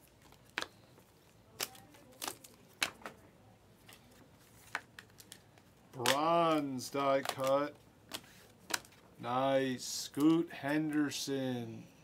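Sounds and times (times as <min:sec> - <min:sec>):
trading cards clicking and snapping: 0:04.6 - 0:09.0.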